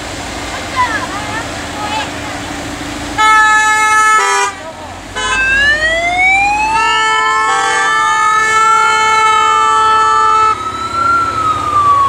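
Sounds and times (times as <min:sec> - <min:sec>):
vehicle horn blast: 0:03.2 - 0:05.6, 0:06.8 - 0:10.6
siren wailing: 0:05.2 - 0:12.0.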